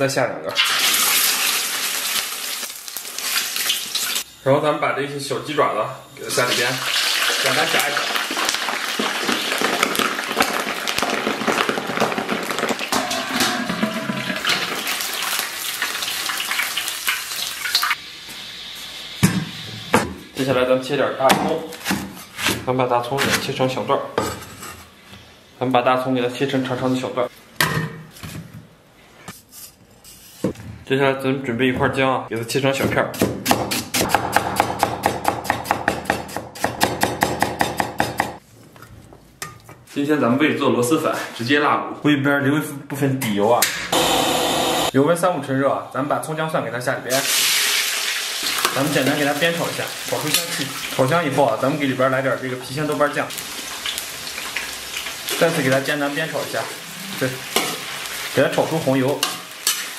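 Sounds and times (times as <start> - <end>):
deep-frying sizzle with crackles: 0.6 - 4.3, 6.7 - 12.9, 14.4 - 19.8, 47.1 - 59.9
cleaver chopping on wooden block: 33.2 - 38.4.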